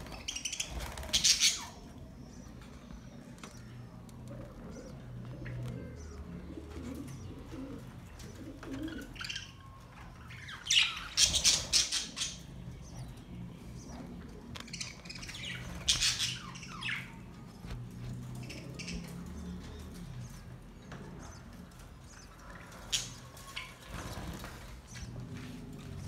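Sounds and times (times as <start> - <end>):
budgerigars chirping: 10.6 - 13.1, 14.6 - 17.1.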